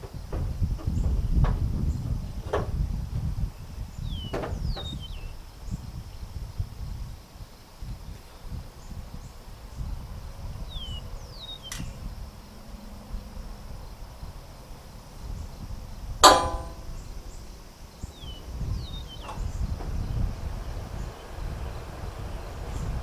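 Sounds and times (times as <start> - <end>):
wind rumble on microphone: 0.0 - 23.0
sharp metallic clang: 16.2 - 17.0.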